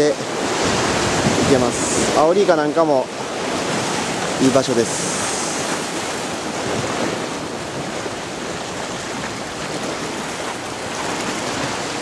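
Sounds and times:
surf breaking on rocks: 0.0s - 12.0s.

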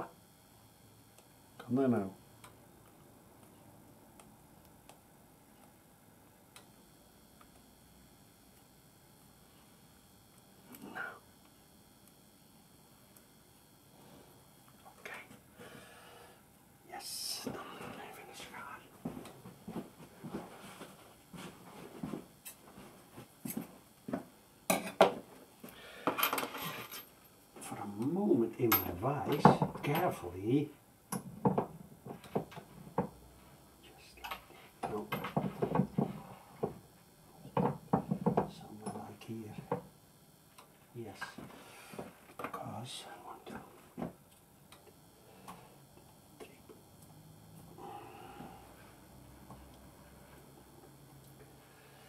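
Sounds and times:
faint clicks of electrical tape: 2.4s - 5.8s, 6.5s - 7.7s, 8.5s - 8.7s, 13.1s - 13.3s.

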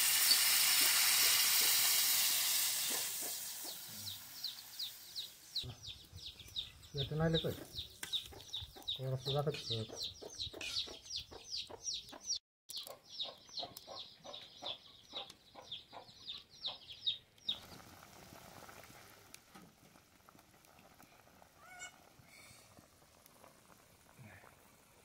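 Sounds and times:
gravy bubbling in a pan: 17.4s - 25.0s.

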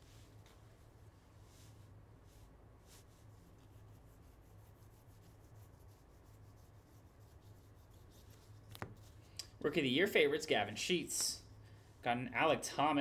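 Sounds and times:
low steady hum: 0.0s - 13.0s
cards rubbing in hand: 1.4s - 9.4s.

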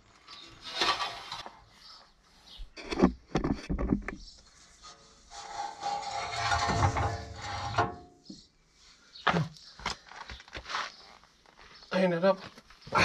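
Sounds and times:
metal scraping on metal: 0.3s - 1.8s, 4.5s - 8.4s.

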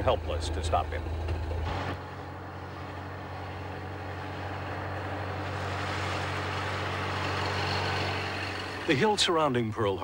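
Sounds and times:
car engine humming: 0.0s - 10.0s.

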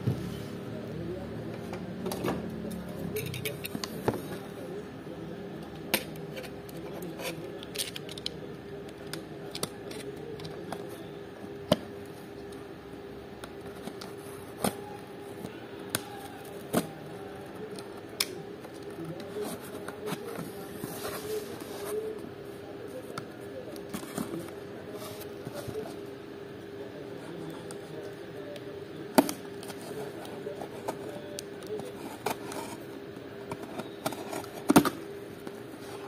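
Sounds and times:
clicks and scrapes: 9.1s - 10.9s, 29.2s - 36.0s.

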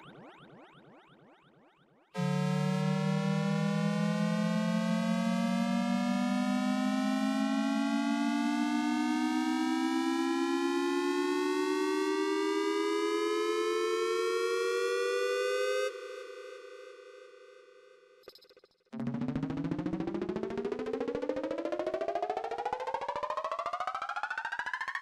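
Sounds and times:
synth siren rising tone: 2.2s - 10.1s.

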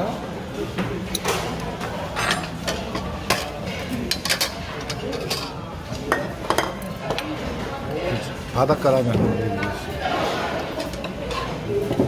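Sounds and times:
utensils clinking against dishes: 0.7s - 12.0s.

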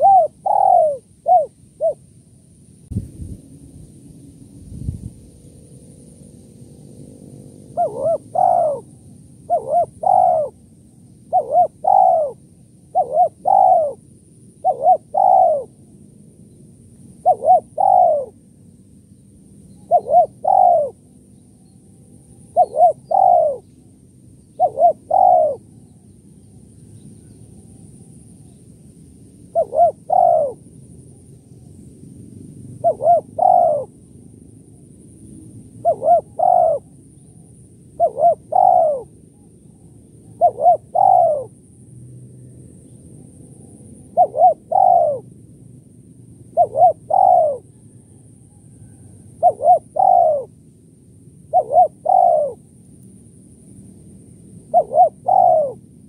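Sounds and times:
dove cooing: 0.0s - 2.1s, 7.7s - 15.8s, 17.2s - 18.4s, 19.7s - 21.0s, 22.4s - 23.7s, 24.5s - 26.1s, 29.5s - 30.7s, 32.8s - 34.0s, 35.8s - 41.6s, 43.5s - 45.3s, 46.5s - 50.6s, 51.5s - 52.7s, 54.6s - 56.0s.

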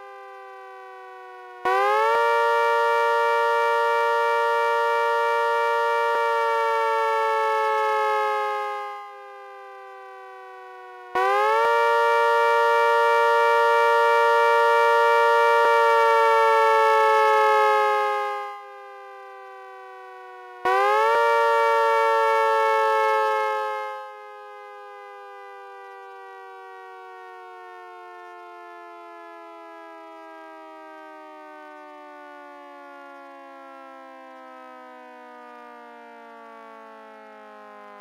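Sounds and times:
siren winding up and down: 0.0s - 30.3s.

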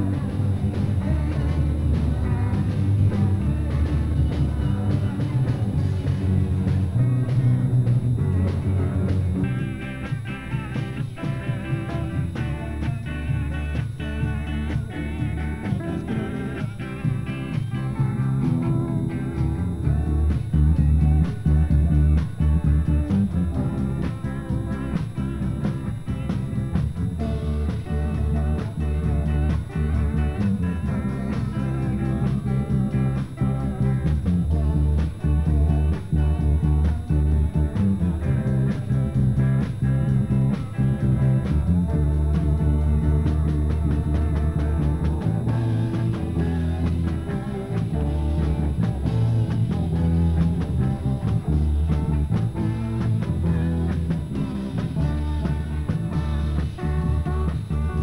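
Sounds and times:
bass guitar: 0.0s - 58.0s
drum kit beat: 0.0s - 58.0s
guitar melody: 0.0s - 58.0s.

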